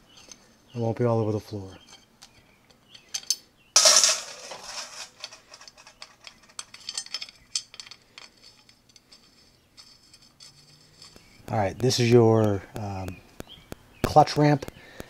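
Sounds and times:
metal screws clicking and clinking: 1.9s - 11.4s
loud metallic clatter: 3.8s - 7.8s.

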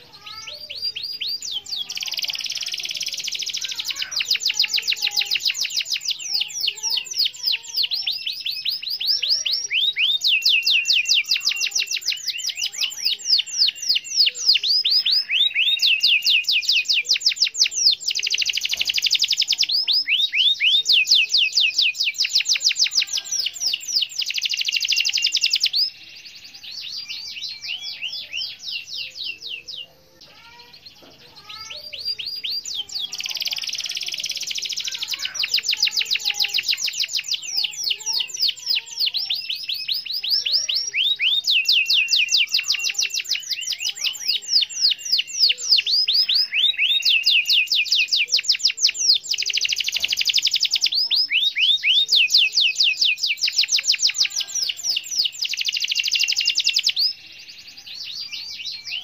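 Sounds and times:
canary singing trills: 0.0s - 59.0s.

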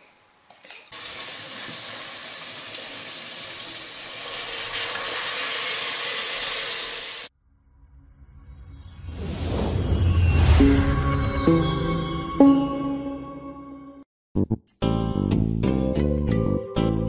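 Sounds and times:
food sizzling in oven: 1.0s - 7.3s.

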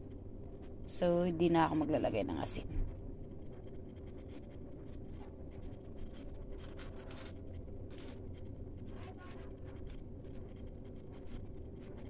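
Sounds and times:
foil crinkling: 5.6s - 12.0s.

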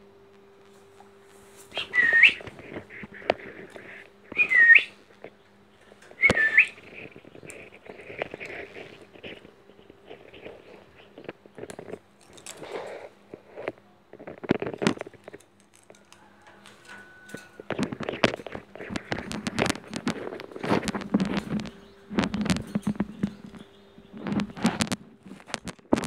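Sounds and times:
scratching on wooden perch: 0.7s - 26.0s
parakeet whistles: 1.7s - 2.5s, 4.3s - 5.0s, 6.2s - 6.8s.

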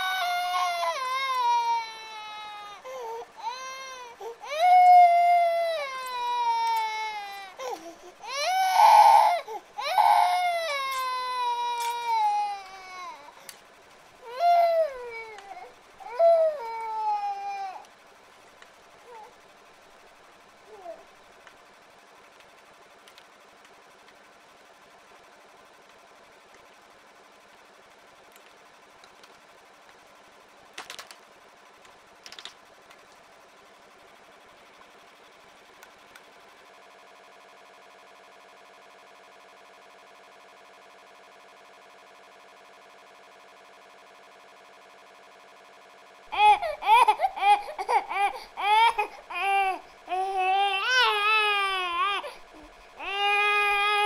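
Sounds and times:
child wailing: 0.0s - 13.3s
faint steady hum: 0.0s - 54.0s.

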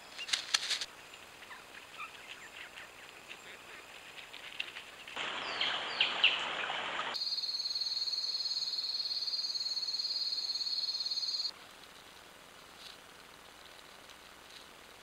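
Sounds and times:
rustling in dry leaves: 0.0s - 7.2s, 11.5s - 15.0s
insect high-pitched trill: 7.2s - 11.6s.

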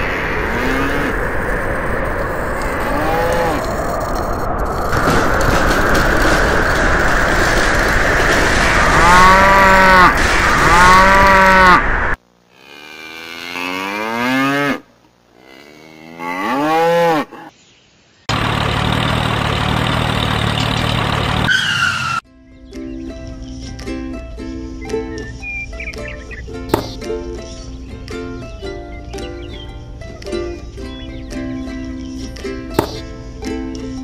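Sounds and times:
mechanical drone: 0.0s - 14.0s
cattle mooing: 8.9s - 11.8s, 12.5s - 17.5s.

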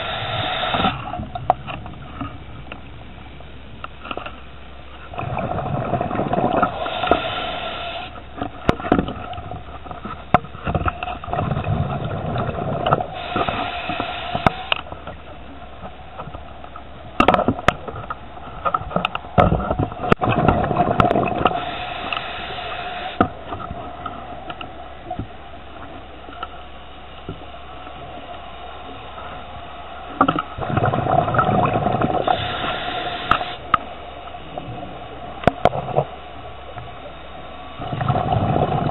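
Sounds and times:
regulator hiss on inhale: 0.0s - 1.2s, 6.6s - 8.2s, 13.1s - 14.9s, 21.4s - 23.3s, 32.2s - 33.7s
exhaled bubbles rushing: 5.1s - 9.8s, 11.2s - 18.5s, 19.3s - 24.0s, 30.3s - 33.6s, 37.7s - 38.9s.

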